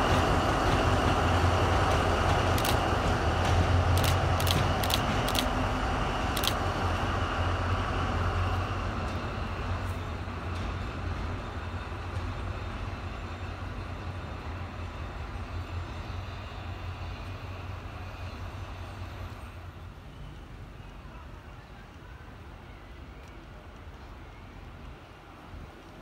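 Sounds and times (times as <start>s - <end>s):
diesel locomotive drone: 0.0s - 26.0s
sharp clicks: 2.6s - 2.9s, 4.0s - 5.6s, 6.4s - 6.6s.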